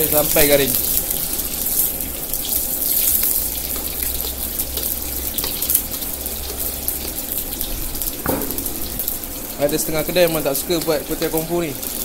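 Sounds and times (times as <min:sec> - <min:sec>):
noodles deep-frying in oil: 0:00.0 - 0:12.0
kitchen tap running: 0:03.4 - 0:12.0.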